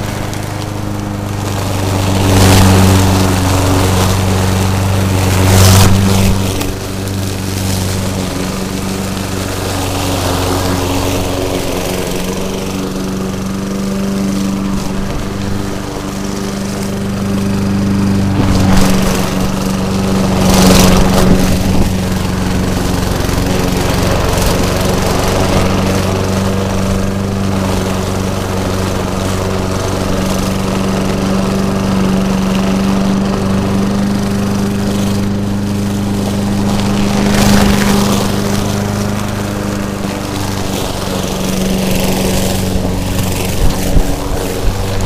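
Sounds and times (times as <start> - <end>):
lawn mower engine running: 0.0 - 45.0.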